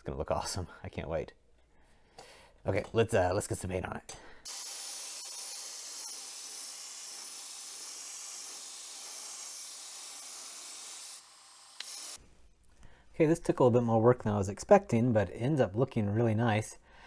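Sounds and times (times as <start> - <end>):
airbrush spraying hiss: 4.5 - 12.2.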